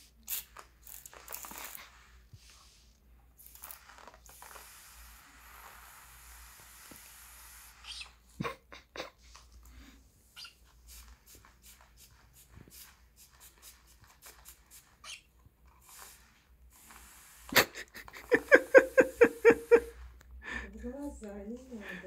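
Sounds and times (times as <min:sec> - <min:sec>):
spray bottle spritzing: 0:00.1 - 0:02.1, 0:03.4 - 0:08.2, 0:10.4 - 0:15.2, 0:15.8 - 0:20.0.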